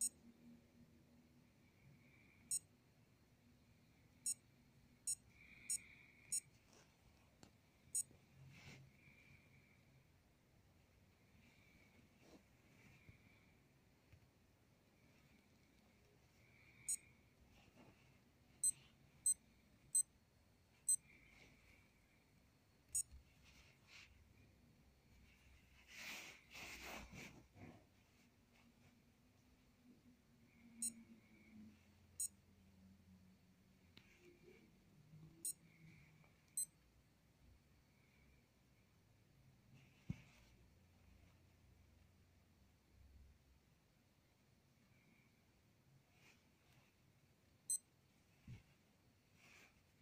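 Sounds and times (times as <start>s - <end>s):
digital watch beeping: 5.0s - 6.5s, 16.8s - 17.0s, 30.8s - 31.0s.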